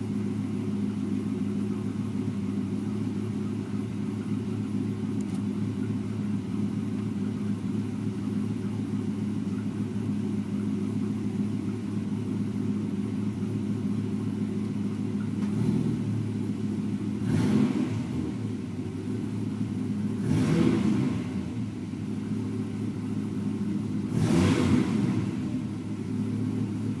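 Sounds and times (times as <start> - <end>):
car engine idling and revving: 0.0 - 27.0.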